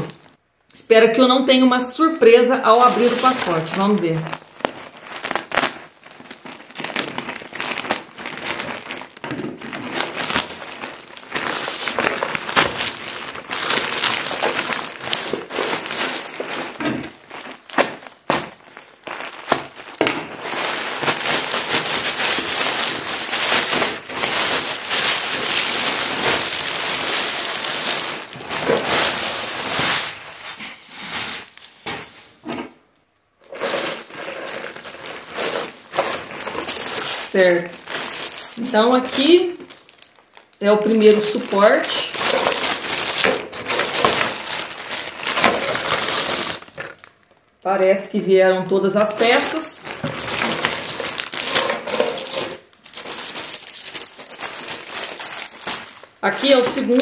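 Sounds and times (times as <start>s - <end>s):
plastic bag crinkling: 0.0s - 0.5s, 2.6s - 32.4s, 33.0s - 57.0s
utility knife cutting plastic bag: 2.8s - 30.2s, 33.5s - 38.6s, 41.0s - 47.1s, 49.0s - 57.0s.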